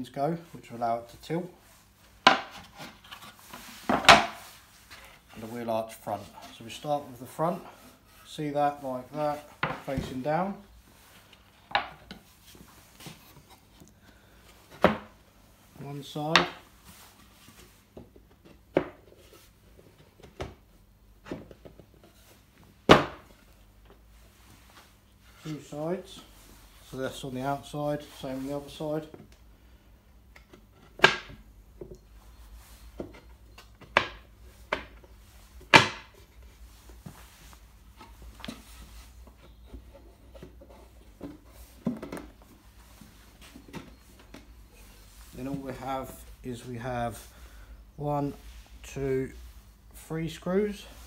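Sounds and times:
wood knocking and rubbing on wood: 2.2 - 5.1, 9.3 - 10.2, 11.5 - 12.3, 32.8 - 44.6
plywood panels knocking: 35.6 - 36.2.

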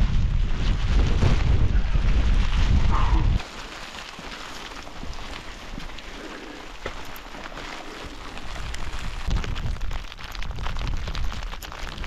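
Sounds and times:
wind buffeting microphone: 0.0 - 3.4, 8.0 - 12.0
hail and rain pattering: 0.0 - 12.0.

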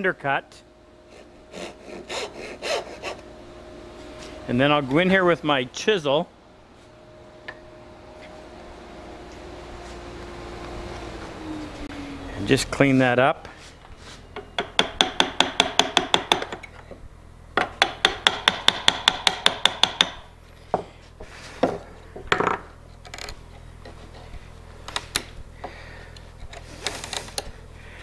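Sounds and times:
wooden mallet tapping chisel: 14.4 - 16.6, 17.6 - 20.2.

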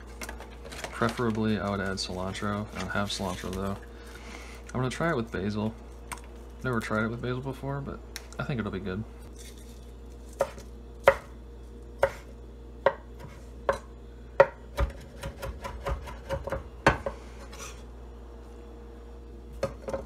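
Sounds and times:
knife chopping on wooden board: 10.4 - 11.3, 12.0 - 17.2.

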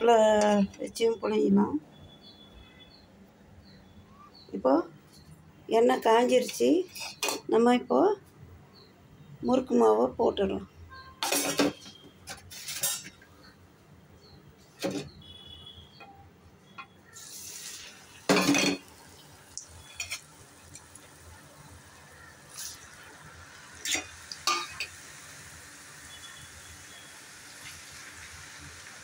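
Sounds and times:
metal utensils clinking on pots: 6.2 - 7.5, 11.2 - 13.2, 18.3 - 18.9, 19.9 - 20.3, 23.8 - 25.0
dough sizzling in hot oil: 17.0 - 29.0.

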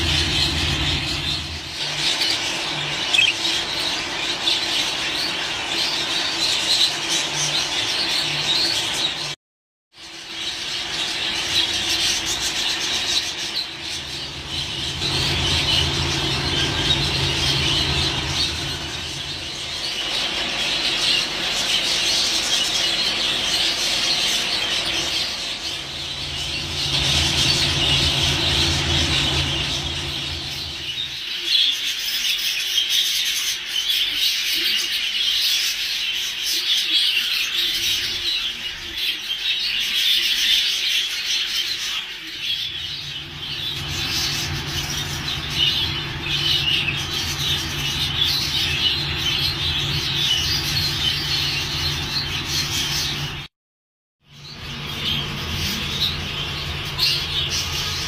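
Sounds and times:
budgerigars chattering and warbling: 0.0 - 9.4, 10.1 - 53.5, 54.4 - 58.0
low steady hum: 12.2 - 22.4, 24.4 - 31.2.

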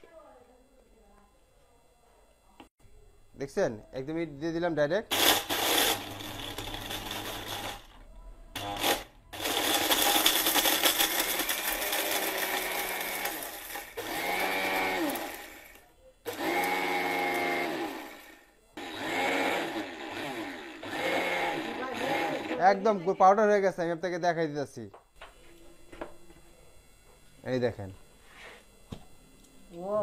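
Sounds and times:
mixer grinder grinding brick: 5.1 - 23.2.

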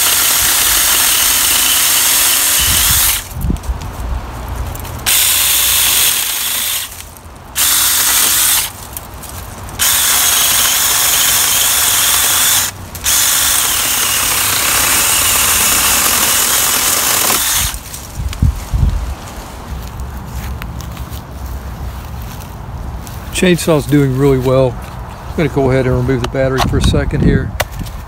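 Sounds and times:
cordless chainsaw cutting branches: 0.0 - 3.4, 5.0 - 8.8, 9.7 - 18.1.

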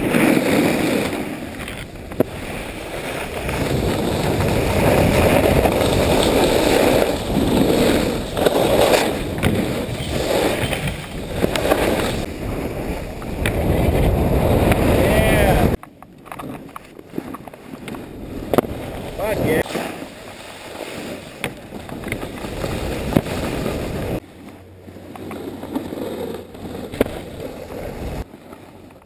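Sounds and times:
skis scraping on snow: 0.0 - 29.0
wind on microphone: 1.2 - 20.2.

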